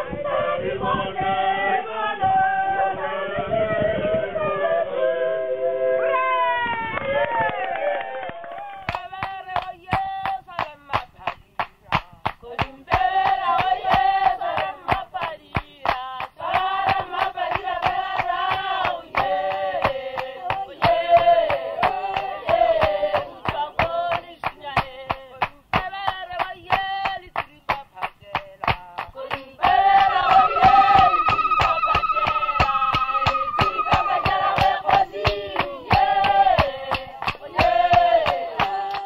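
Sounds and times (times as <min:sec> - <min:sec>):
group singing: 0:00.0 - 0:06.2, 0:08.6 - 0:11.4, 0:12.4 - 0:39.0
hand-clapping: 0:07.0 - 0:39.0
hand drums: 0:08.8 - 0:39.0
high held note: 0:29.9 - 0:35.2.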